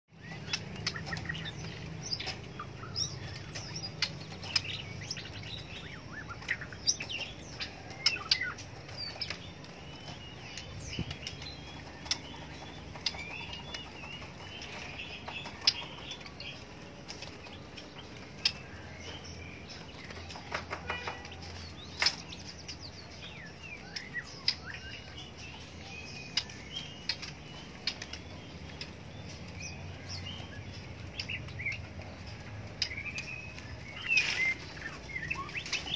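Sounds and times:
birds chirping and whistling: 0.1s - 35.9s
sharp clicks from cages: 0.1s - 35.9s.

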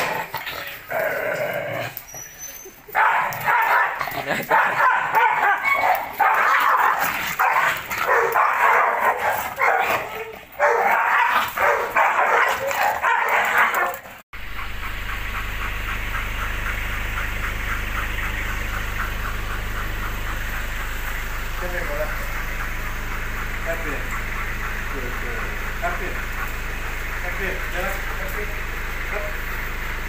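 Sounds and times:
dogs yipping and barking: 1.8s - 28.9s
dog panting: 14.5s - 28.8s.

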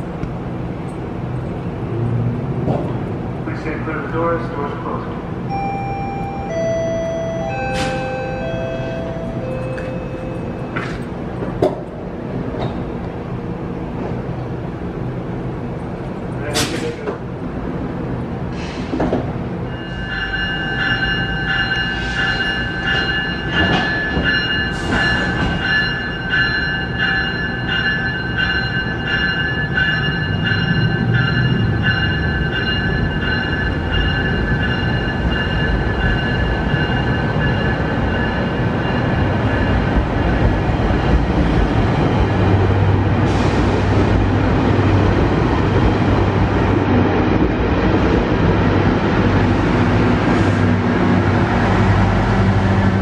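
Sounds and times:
train rumble: 0.0s - 53.0s
high-pitched ringing tone: 5.5s - 11.0s, 19.7s - 40.0s.

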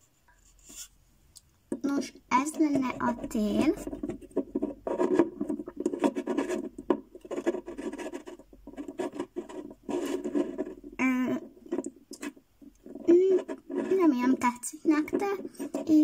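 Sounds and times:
plastic rubbing and tapping on wood: 1.7s - 16.0s.

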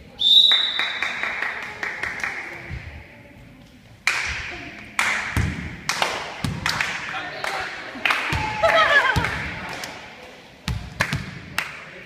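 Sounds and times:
volleyball slaps and bounces: 4.0s - 7.1s, 8.2s - 10.0s, 10.6s - 11.8s.

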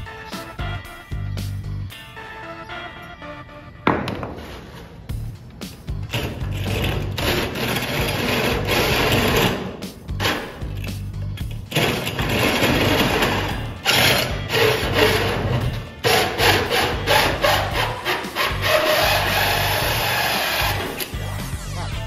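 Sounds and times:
power drill cutting with hole saw: 12.1s - 21.0s.

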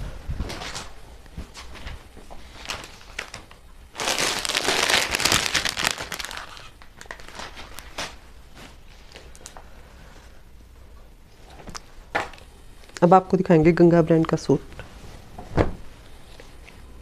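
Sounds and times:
packaging crinkling and rustling: 0.4s - 9.6s.

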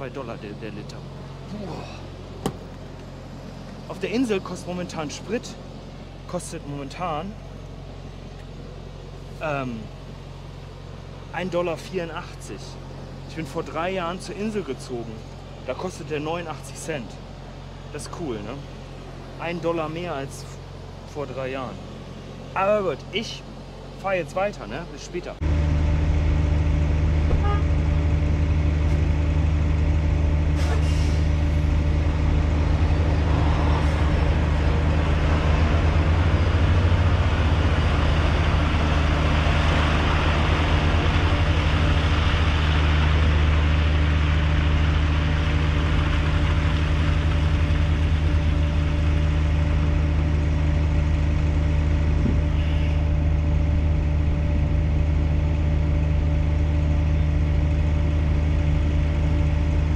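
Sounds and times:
diesel truck engine idling: 0.0s - 59.9s
truck rolling past: 17.4s - 59.9s.

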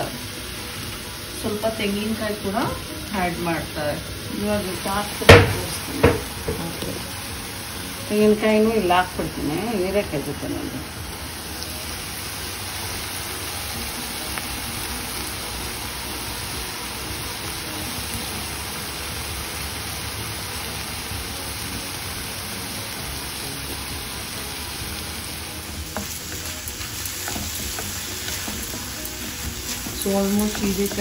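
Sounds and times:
vegetables sizzling in oil: 0.0s - 31.0s
wooden spatula scraping: 25.8s - 31.0s.

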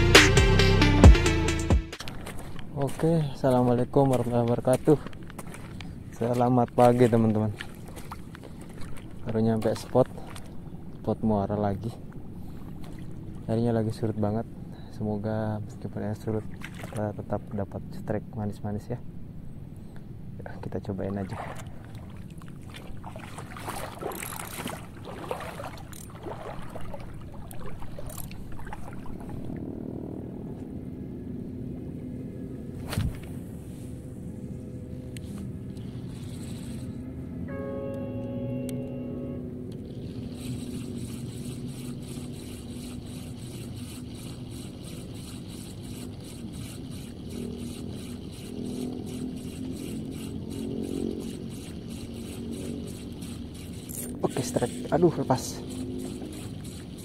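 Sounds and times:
boat engine hum: 0.0s - 18.3s, 19.0s - 57.0s
fishing reel clicks and rustles: 23.6s - 28.7s, 34.9s - 37.0s, 39.7s - 57.0s.

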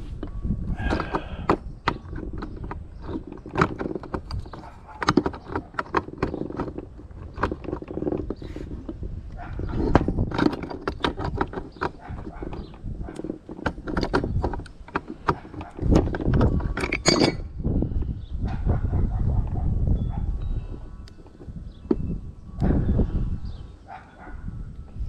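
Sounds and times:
pipe wrench clinking on metal: 16.3s - 17.4s.

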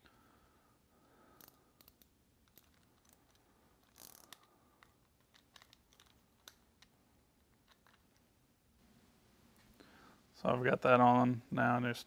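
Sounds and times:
small metal clicks: 1.3s - 8.3s.

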